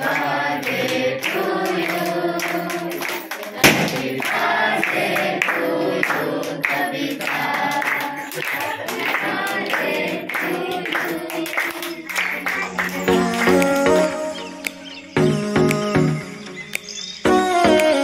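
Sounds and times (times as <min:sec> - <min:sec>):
hands clapping: 0:00.0 - 0:14.9, 0:16.7 - 0:18.0
voices singing with music: 0:00.0 - 0:18.0
sharp bang: 0:03.6 - 0:04.4.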